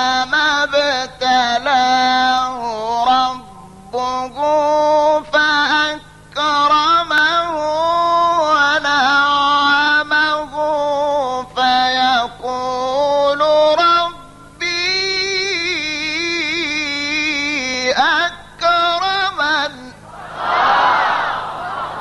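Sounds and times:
man chanting melodically: 0.0 - 20.1.

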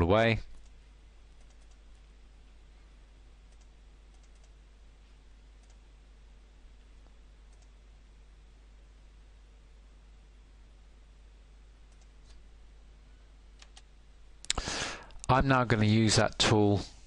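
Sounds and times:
steady low hum: 0.0 - 17.0
keyboard and mouse clicks: 1.4 - 1.8, 3.5 - 4.6, 7.5 - 7.8, 11.9 - 12.4, 13.6 - 15.4.

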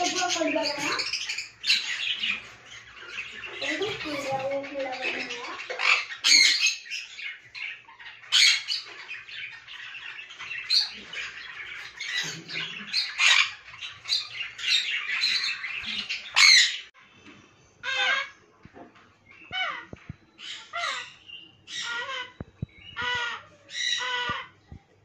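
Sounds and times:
parrot screeching: 5.2 - 7.0, 10.6 - 16.8, 17.8 - 18.3, 19.5 - 22.4, 23.0 - 24.5.

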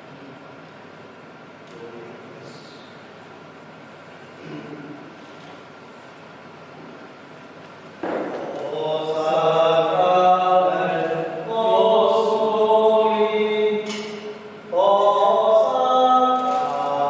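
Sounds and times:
slow hymn singing: 8.0 - 17.0.

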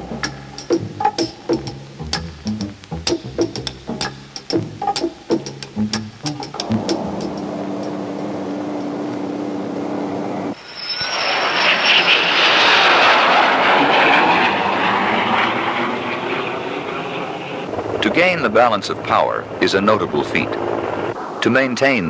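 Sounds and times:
steady low hum: 0.0 - 10.7
jet fighter flying past: 6.6 - 22.0.

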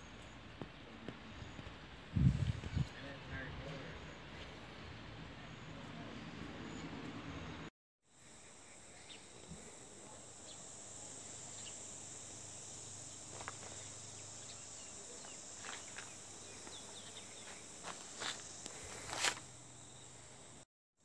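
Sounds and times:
insects droning: 8.1 - 20.7.

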